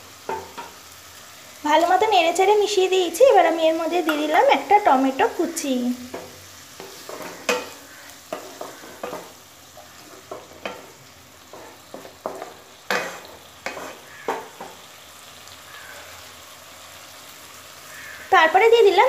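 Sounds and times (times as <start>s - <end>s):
food sizzling in oil: 0.0s - 19.0s
spatula scraping and knocking pan: 0.2s - 0.8s, 6.0s - 14.8s.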